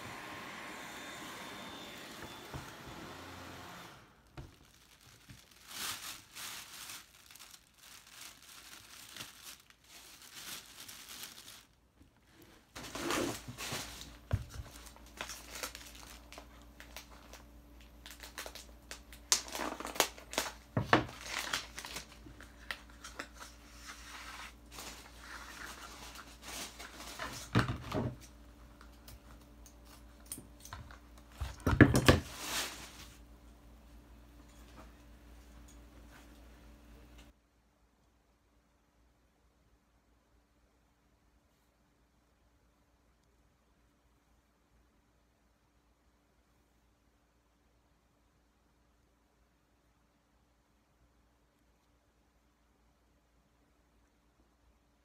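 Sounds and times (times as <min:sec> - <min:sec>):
cellophane crinkling and rustling: 0:04.1 - 0:33.3.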